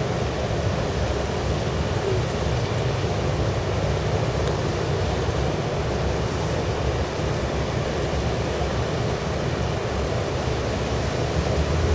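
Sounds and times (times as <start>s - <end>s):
churning water: 0.0s - 11.9s
ferry engine drone: 0.0s - 11.9s.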